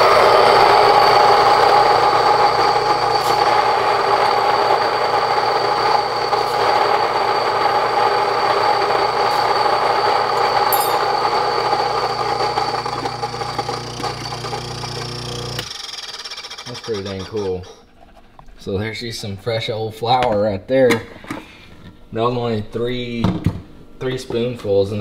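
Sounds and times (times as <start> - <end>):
grain mill whirring: 0.0 - 18.4.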